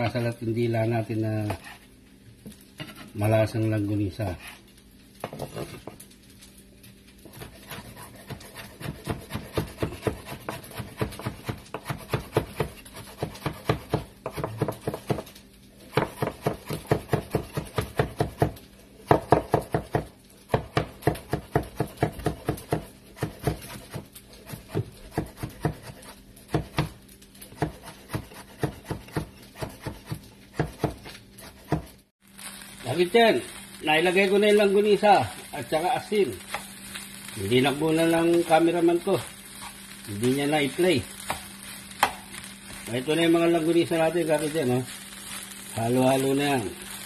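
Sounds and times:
knife chopping on wooden board: 7.2 - 15.3, 15.9 - 31.9.

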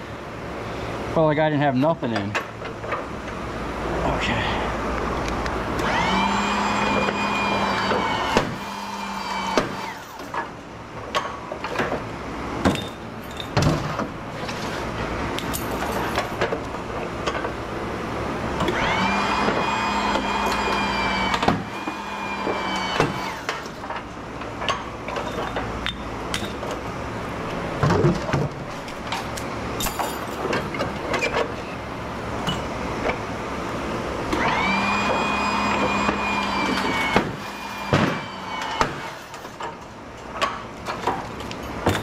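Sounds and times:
steady hum: 0.0 - 42.0
power tool whining: 5.7 - 10.4, 18.6 - 24.0, 34.2 - 39.6.

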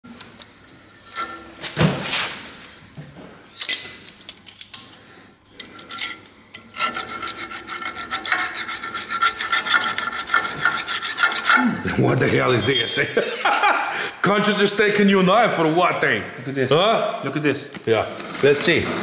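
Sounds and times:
knife scraping on steel bar: 5.6 - 11.8.

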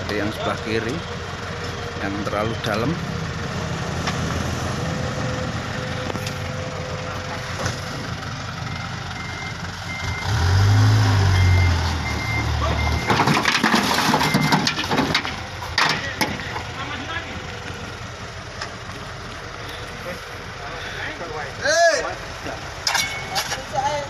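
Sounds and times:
diesel engine revving: 0.0 - 22.9
reversing beeper short beeps: 8.8 - 13.2.

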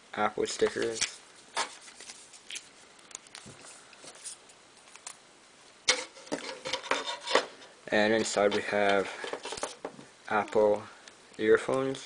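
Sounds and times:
paper rustling and crinkling: 0.6 - 5.2.

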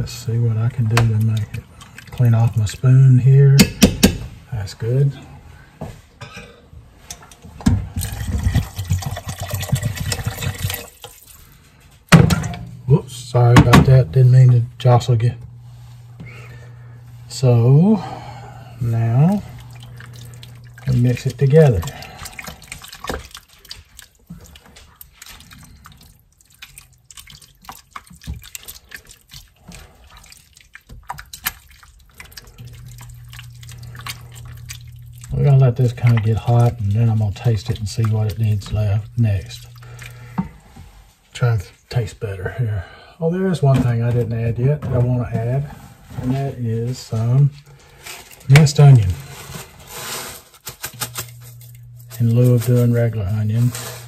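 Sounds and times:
low steady hum: 0.0 - 54.0
spoon stirring wet chili: 0.1 - 4.2, 7.0 - 11.6, 18.0 - 41.0, 44.8 - 54.0
water pouring into a pot: 7.9 - 11.6, 18.8 - 40.6.

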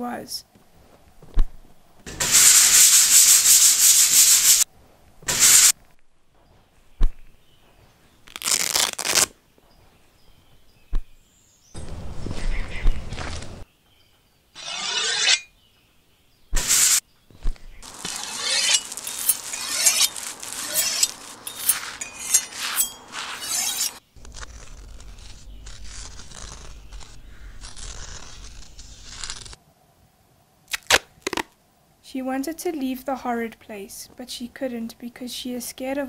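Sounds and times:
scraping and clinking: 17.8 - 24.0.

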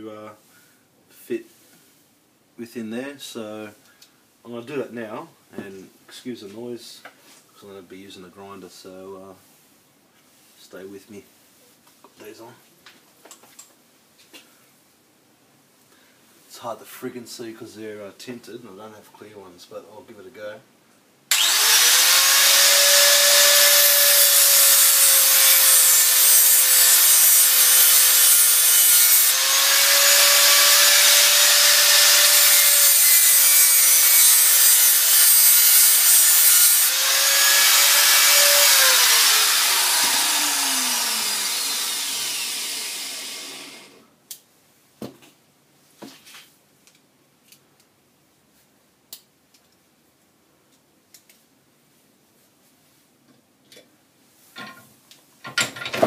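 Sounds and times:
grinder disc spinning down: 21.3 - 26.3, 36.9 - 44.0
angle grinder grinding steel: 21.3 - 44.0.

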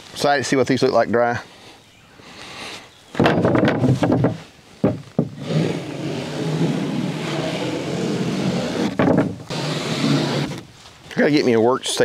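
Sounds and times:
boards clattering on a stack: 3.2 - 5.5, 8.9 - 9.5
wooden knocks: 3.2 - 5.6, 8.9 - 9.4.

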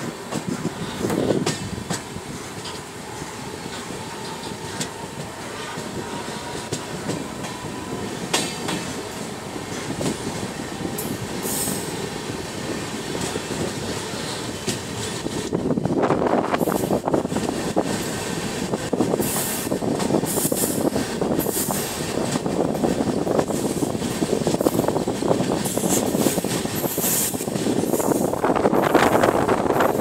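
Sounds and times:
wheels clacking over rail joints: 0.0 - 3.0, 3.6 - 15.6
train wheels rumbling on rail: 0.0 - 30.0.

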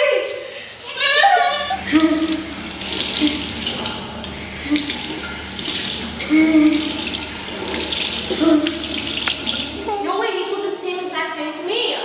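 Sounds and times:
tap water splashing into basin: 1.7 - 10.0.

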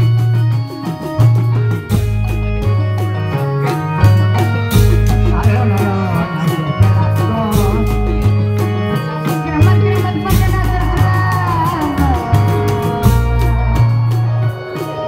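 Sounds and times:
amplified ensemble music: 0.0 - 15.0
deep bass notes pulsing: 3.9 - 14.8.

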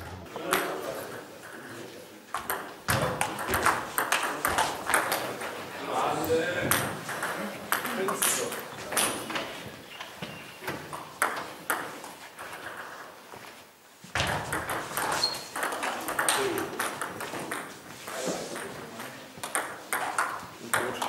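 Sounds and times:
table tennis balls clicking: 2.3 - 5.6, 6.6 - 13.2, 14.2 - 21.0.

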